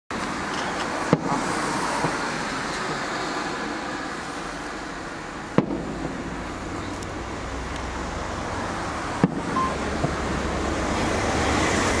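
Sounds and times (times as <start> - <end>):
firework shell bang: 5.5 - 7.0, 9.2 - 10.2.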